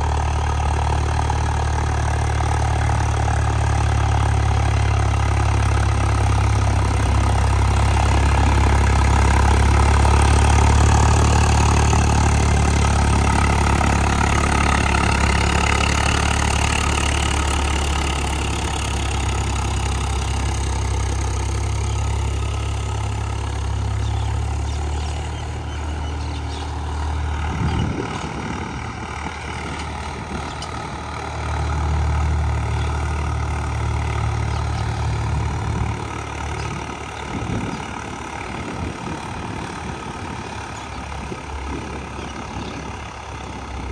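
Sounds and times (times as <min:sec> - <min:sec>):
tractor diesel engine droning: 0:00.0 - 0:43.9.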